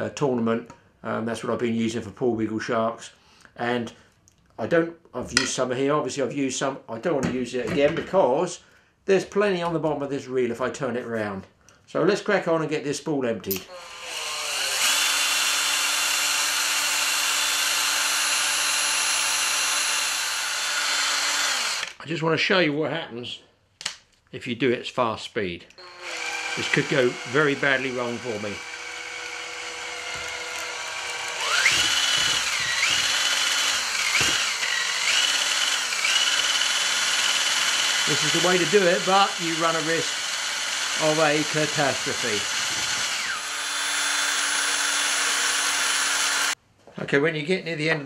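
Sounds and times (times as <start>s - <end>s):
cordless drill whining: 13.5s - 22.0s, 25.8s - 46.6s.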